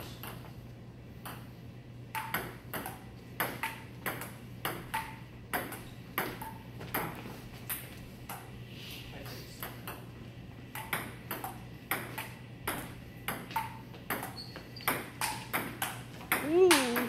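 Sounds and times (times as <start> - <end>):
table tennis ball clicking: 2.1 - 5.8.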